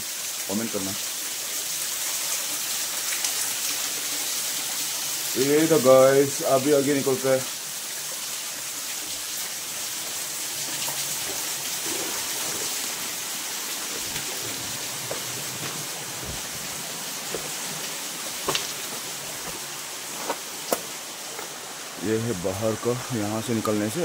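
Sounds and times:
water rushing in rocky stream: 8.0 - 24.0.

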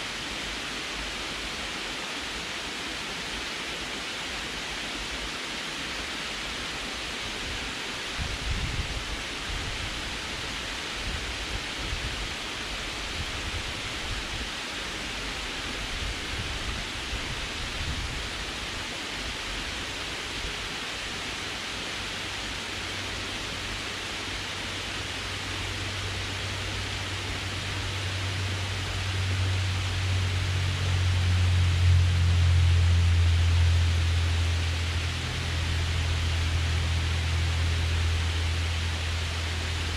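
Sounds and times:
water rushing over dam spillway: 0.0 - 39.9
low rumble: 24.8 - 39.9.

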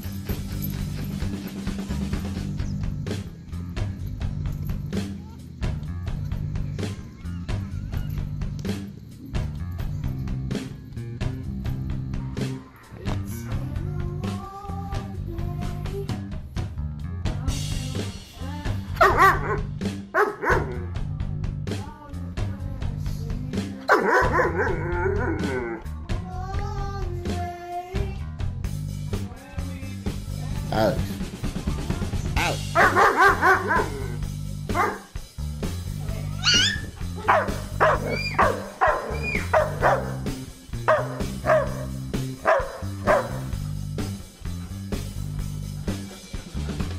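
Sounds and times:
background music: 0.0 - 46.9
dog barking: 19.0 - 20.9, 23.9 - 25.4, 32.4 - 35.1, 36.4 - 43.5.

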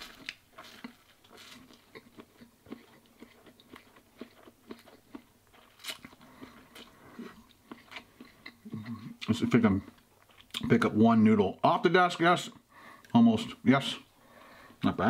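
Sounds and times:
man chewing and slurping noodles: 0.0 - 9.3.

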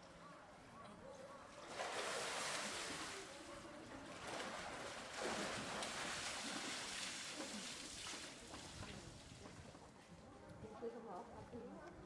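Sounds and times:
water splashing and sloshing: 1.5 - 10.0.

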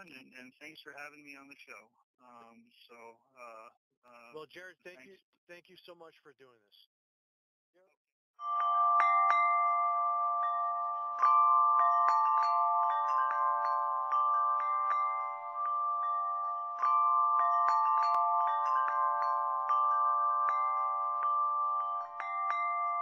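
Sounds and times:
chimes ringing: 8.4 - 23.0.

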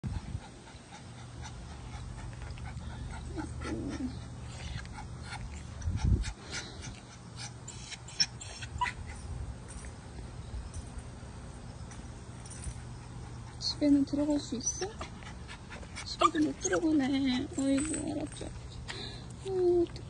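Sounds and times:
small dog panting: 0.1 - 9.2, 12.8 - 17.8
dog whimper: 3.3 - 4.2, 7.7 - 9.2, 16.1 - 18.1.

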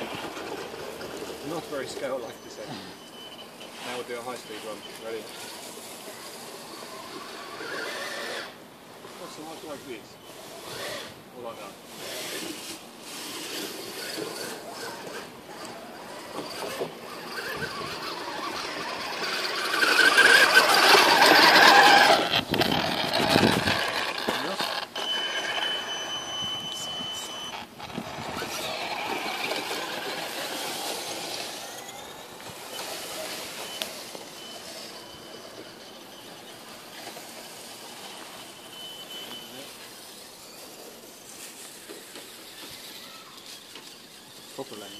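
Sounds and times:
toy truck motor whine: 0.0 - 11.2, 11.9 - 44.9
faint steady high tone: 2.0 - 5.6, 25.0 - 27.6, 31.6 - 42.0
tyres crunching through leaves: 39.2 - 44.9.

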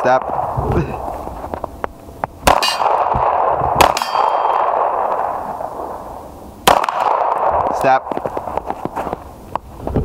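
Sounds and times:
struck steel targets ringing: 2.4 - 4.8
pistol shots: 2.4 - 8.4.

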